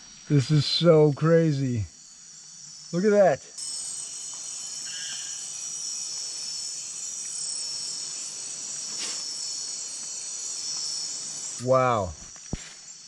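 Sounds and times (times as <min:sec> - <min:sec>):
insect chorus shrill drone: 0:00.0 - 0:13.0.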